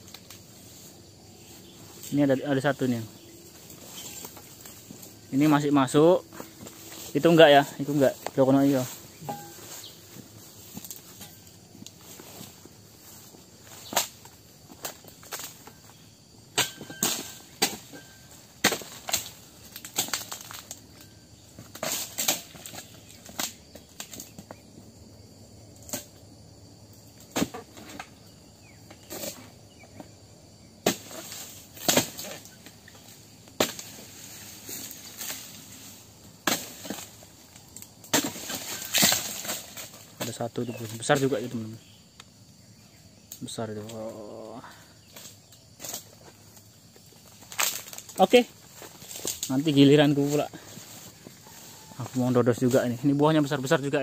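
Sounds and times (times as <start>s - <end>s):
chisel chopping palm fronds: 16.5s - 20.8s, 21.6s - 24.3s, 30.8s - 32.6s, 33.6s - 35.7s, 36.4s - 37.2s, 38.0s - 40.4s.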